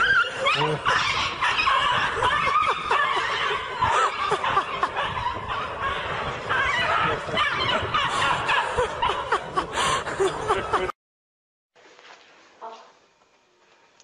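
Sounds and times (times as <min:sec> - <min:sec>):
people laughing and giggling: 0:00.0 - 0:11.0.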